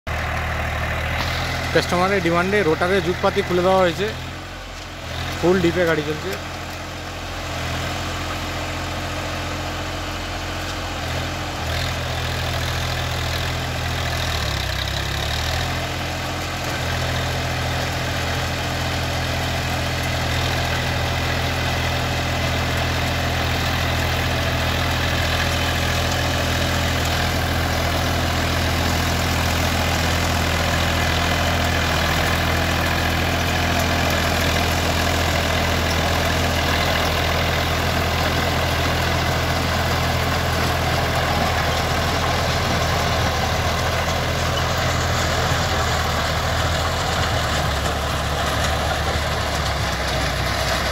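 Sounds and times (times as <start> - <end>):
tractor diesel engine under load: 0.1 - 50.9.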